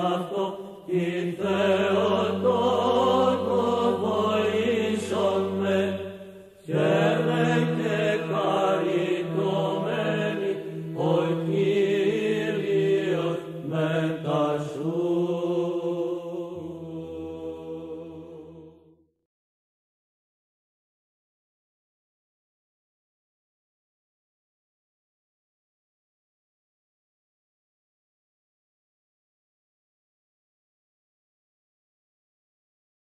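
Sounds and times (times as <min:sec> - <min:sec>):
low held vocal drone: 0:00.0 - 0:18.9
sung chant melody: 0:00.0 - 0:19.1.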